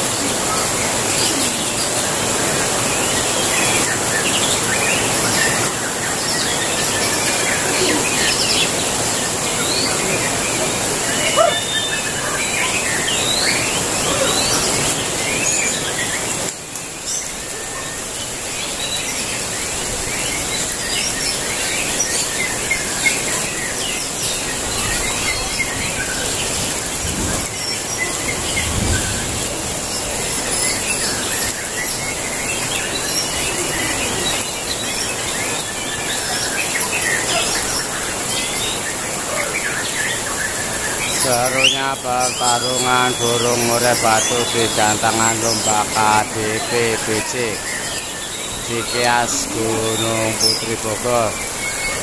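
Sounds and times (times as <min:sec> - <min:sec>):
steady high hiss: 0:00.0 - 0:52.0
birds singing whistled phrases: 0:11.1 - 0:26.3, 0:30.7 - 0:52.0.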